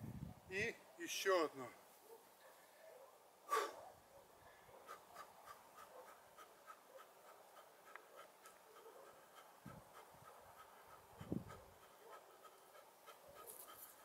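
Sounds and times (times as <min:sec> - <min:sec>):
man exhaling sharply: 0:03.5 - 0:03.8.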